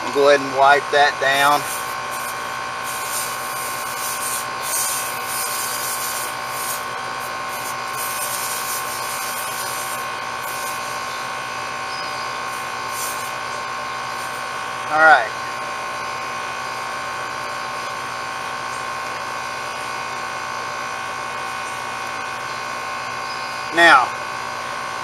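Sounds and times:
air conditioner unit humming: 0.0s - 25.0s
rag wiping pipe joints: 1.4s - 10.8s.

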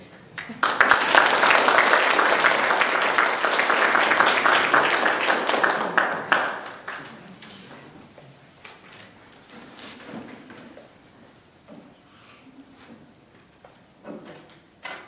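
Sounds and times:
audience applauding: 0.4s - 7.4s.

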